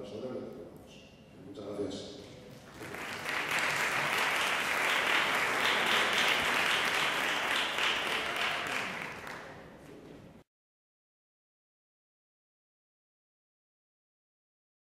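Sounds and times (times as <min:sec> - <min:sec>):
audience applauding: 0:02.7 - 0:09.8.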